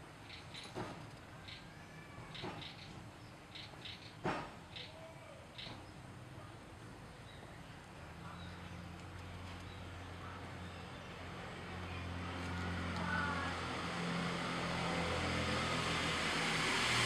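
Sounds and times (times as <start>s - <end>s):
vehicle engine approaching: 7.6s - 17.0s.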